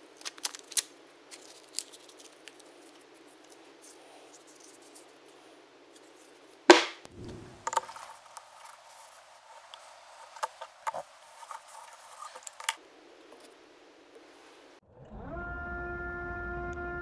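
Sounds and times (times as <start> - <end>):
tape ripped off roll: 6.7 - 8.0.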